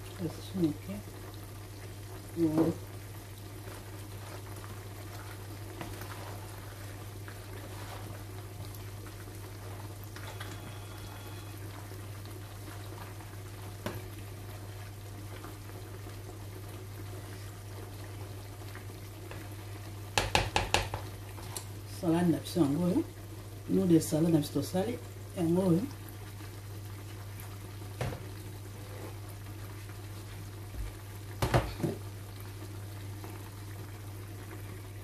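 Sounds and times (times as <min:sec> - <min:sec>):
meat sizzling in a frying pan: 0:00.0 - 0:35.0
wooden spoon stirring in bowl: 0:03.5 - 0:15.6.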